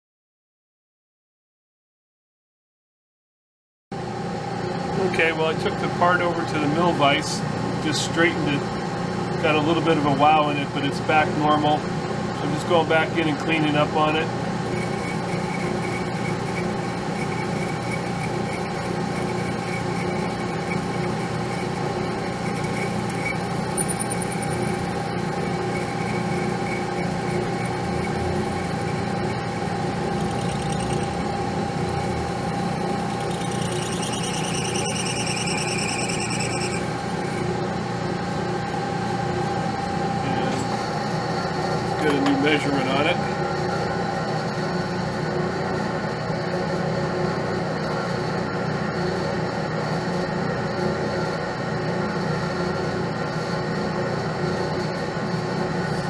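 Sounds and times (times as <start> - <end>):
metal lathe humming: 8.3 - 46.8
boring tool cutting metal: 14.6 - 37.5
high-pitched cutting squeal: 14.6 - 37.6.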